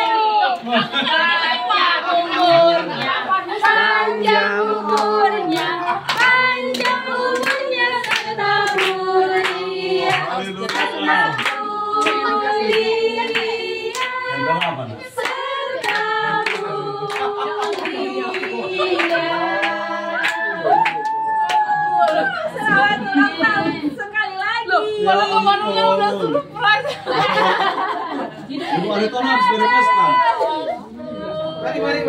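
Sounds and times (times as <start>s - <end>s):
people clapping: 0.0s - 0.8s, 2.3s - 23.6s
group singing a celebration song: 0.0s - 32.0s.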